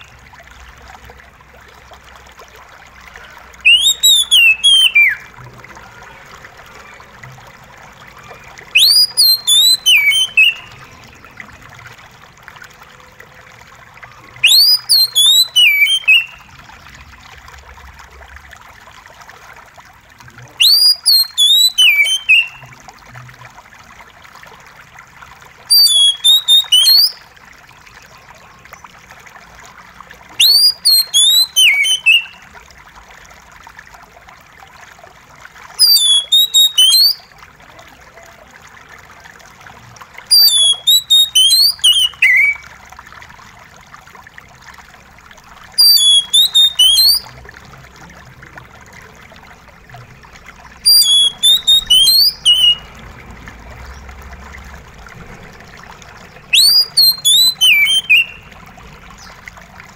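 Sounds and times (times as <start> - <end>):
water trickling: 0.0 - 59.9
bird singing whistled phrases: 3.2 - 5.3, 8.2 - 11.2, 14.4 - 16.5, 20.6 - 22.7, 25.7 - 27.2, 30.4 - 32.4, 35.8 - 37.3, 40.3 - 42.6, 45.8 - 47.3, 50.8 - 52.9, 56.4 - 58.5.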